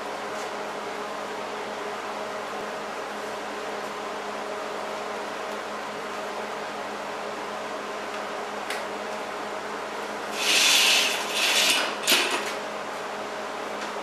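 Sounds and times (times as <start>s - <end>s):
machine hum: 10.2s - 12.2s
rough hissing and scraping: 10.3s - 12.0s.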